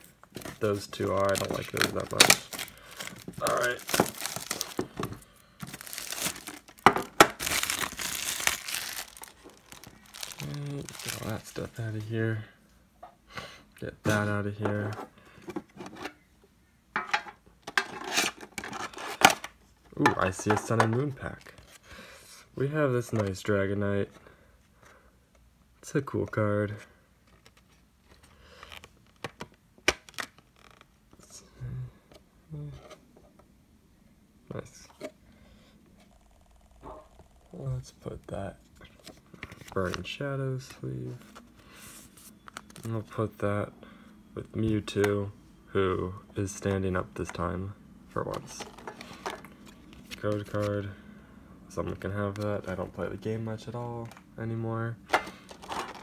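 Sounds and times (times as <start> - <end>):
plastic wrap crinkling: 0.4 - 11.8, 55.4 - 56.0.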